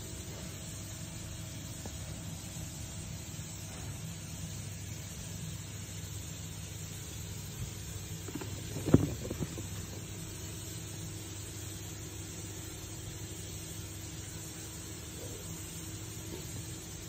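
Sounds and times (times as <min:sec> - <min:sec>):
low hum and hiss of room noise: 0:00.0 - 0:17.0
knocks and rustles of shoe handling: 0:08.2 - 0:10.1.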